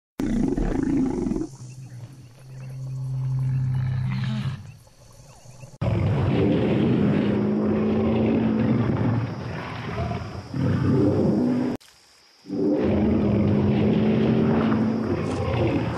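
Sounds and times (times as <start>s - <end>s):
dinosaur bellowing: 5.8s - 11.8s.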